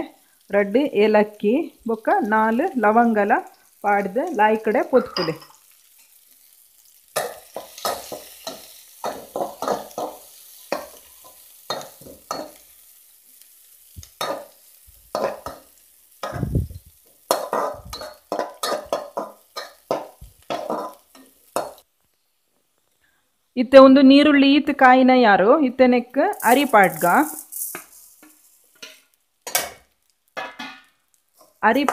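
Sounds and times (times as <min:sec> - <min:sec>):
onions sizzling in a pan: 0:00.0 - 0:31.9
metal spoon scraping a pan: 0:07.2 - 0:12.7, 0:17.3 - 0:21.8, 0:26.4 - 0:29.8.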